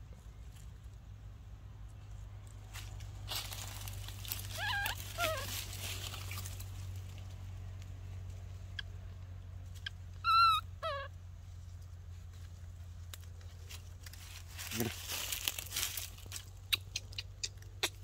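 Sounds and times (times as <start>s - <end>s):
infant monkey calling: 4.3s - 5.8s, 9.8s - 11.2s, 16.6s - 18.0s.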